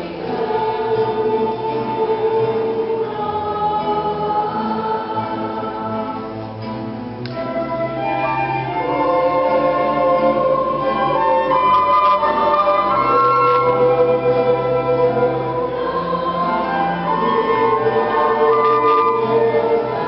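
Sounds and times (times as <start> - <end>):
choir singing sustained notes: 0.0 - 20.0
orchestral accompaniment: 5.8 - 20.0.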